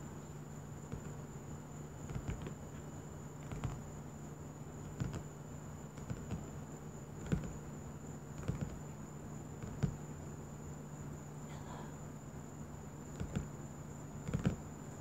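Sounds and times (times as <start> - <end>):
faint high-pitched whine: 0.0 - 15.0
fingers tapping on paper cover: 0.9 - 1.2, 2.0 - 2.6, 3.4 - 3.9, 4.9 - 5.3, 5.9 - 6.5, 7.2 - 7.6, 8.3 - 8.9, 9.6 - 10.0, 13.1 - 13.5, 14.2 - 14.6.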